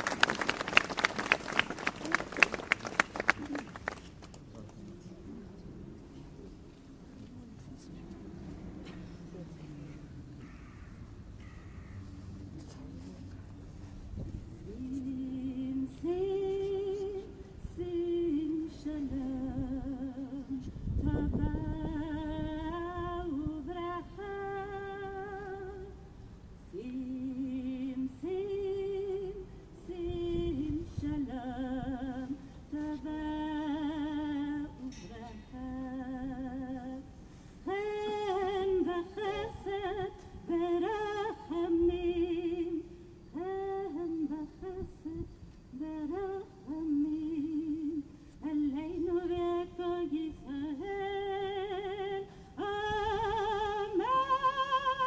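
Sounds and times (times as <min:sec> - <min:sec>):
woman singing unaccompanied: 0:14.6 - 0:55.0
short breaths: 0:37.2 - 0:37.7, 0:52.3 - 0:52.6.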